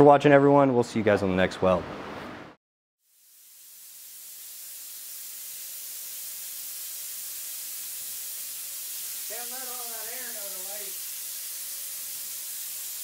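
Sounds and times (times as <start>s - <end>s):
compressed air hissing: 3.1s - 13.0s.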